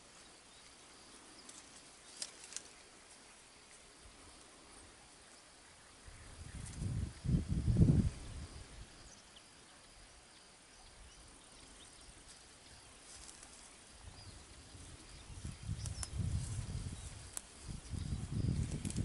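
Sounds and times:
high insect trill: 0:00.0 - 0:19.0.

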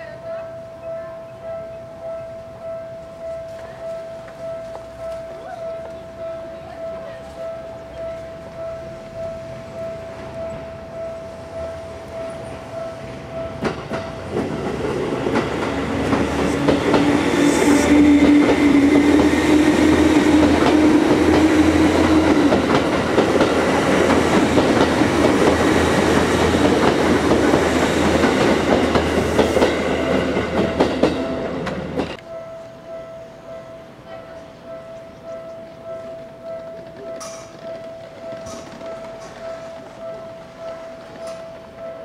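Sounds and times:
train hum: 0:00.0 - 0:42.0
train wheels clicking over rail joints: 0:11.8 - 0:32.2, 0:35.2 - 0:41.8.

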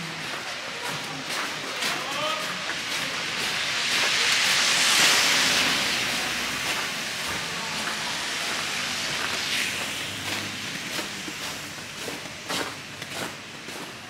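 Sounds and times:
loud hiss: 0:02.3 - 0:13.5.

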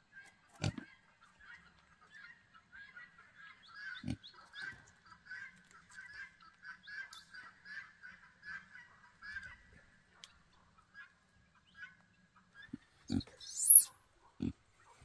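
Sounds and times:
farm fowl calling: 0:02.2 - 0:10.0.

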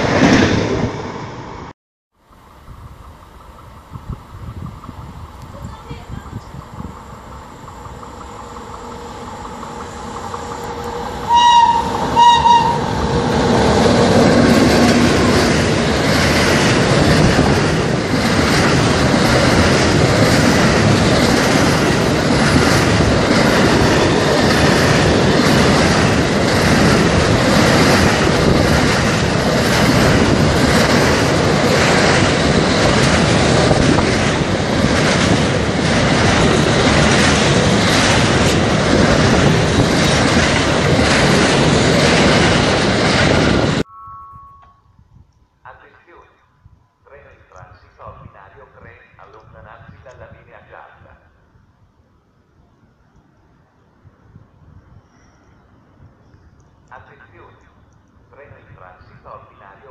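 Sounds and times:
train wheels rumbling on rails: 0:02.2 - 0:43.9
train horn blasts: 0:10.0 - 0:13.0.

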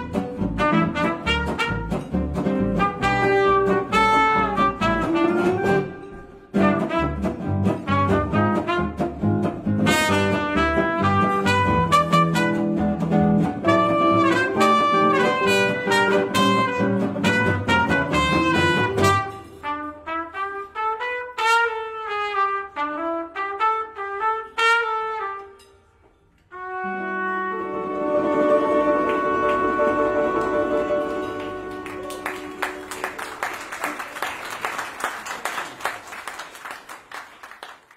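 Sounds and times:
trumpet playing alone: 0:00.0 - 0:02.1, 0:02.7 - 0:09.2, 0:09.8 - 0:12.8, 0:13.6 - 0:25.8, 0:26.5 - 0:32.9
jazz band playing: 0:00.0 - 0:34.0.

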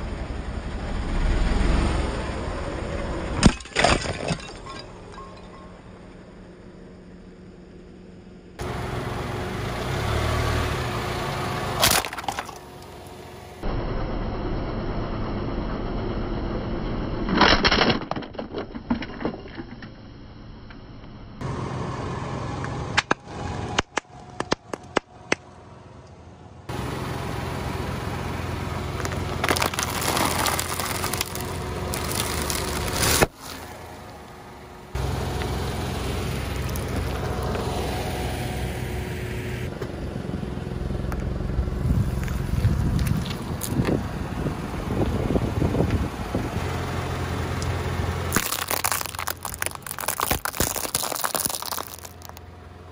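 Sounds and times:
car low rumble: 0:00.0 - 0:52.9
plastic toy cracking under tyre: 0:11.8 - 0:12.6, 0:29.0 - 0:33.4, 0:48.3 - 0:52.4
sharp snaps and pops: 0:48.3 - 0:52.4.

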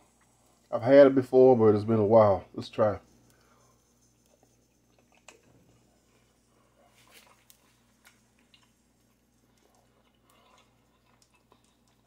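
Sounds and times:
person chewing: 0:04.2 - 0:12.0.

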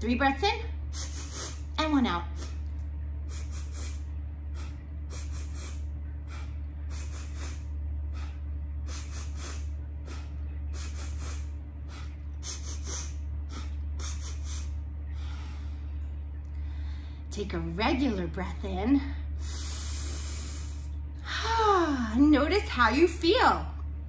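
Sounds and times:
steady low hum: 0:00.0 - 0:24.0
woman sniffing through nose: 0:00.9 - 0:01.7, 0:03.3 - 0:04.0, 0:04.6 - 0:07.6, 0:08.2 - 0:14.7, 0:19.4 - 0:20.9.

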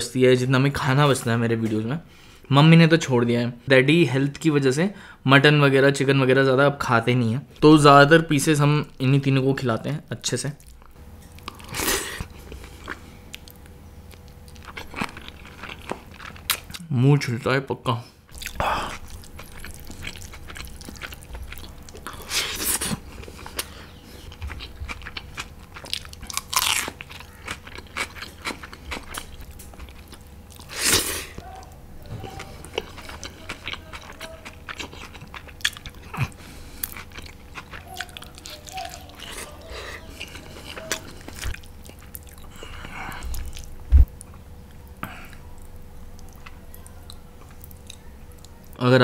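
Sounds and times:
faint steady hum: 0:00.0 - 0:49.0
close chewing and biting: 0:10.6 - 0:16.8, 0:18.3 - 0:48.8.

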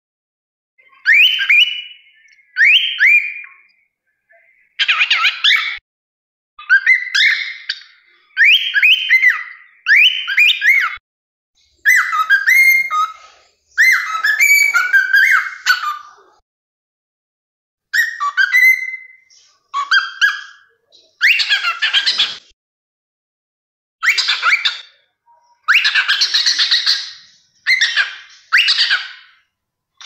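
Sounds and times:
cockatiel whistling: 0:00.9 - 0:03.6, 0:08.4 - 0:11.0, 0:11.8 - 0:16.0, 0:17.9 - 0:20.6, 0:24.0 - 0:24.8, 0:25.6 - 0:29.4.

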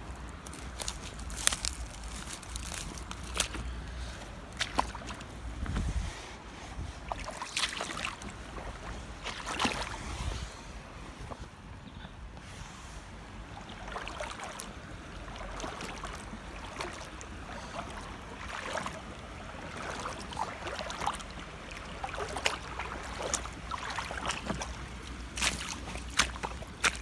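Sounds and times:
footsteps on muddy ground: 0:00.0 - 0:06.0, 0:22.0 - 0:27.0
boots sloshing through shallow water: 0:00.0 - 0:11.6, 0:13.0 - 0:27.0.

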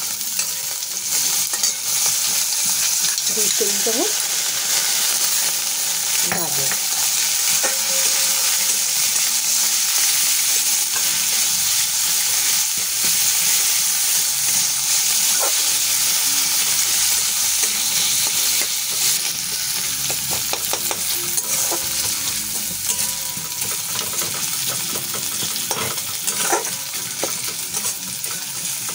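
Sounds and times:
vegetables sizzling in oil: 0:00.0 - 0:28.9
spatula scraping a wok: 0:04.7 - 0:28.9.

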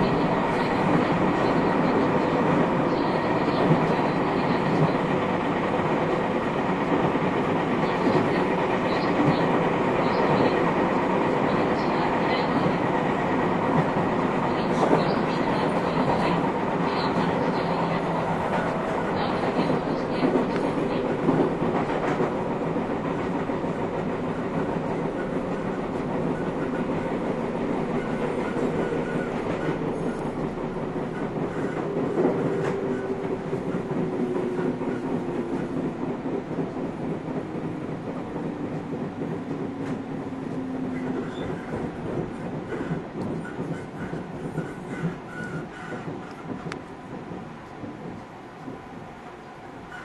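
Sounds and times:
wheel and rail rumble: 0:00.0 - 0:50.0
clacks over rail joints: 0:14.7 - 0:48.9.

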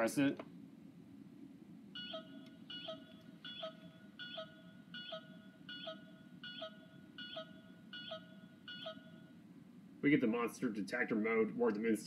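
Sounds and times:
toy short electronic beeps: 0:02.0 - 0:09.3.

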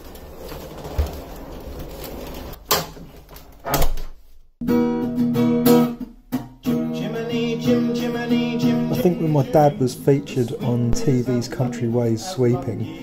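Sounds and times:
acoustic guitar strumming: 0:04.6 - 0:13.0.

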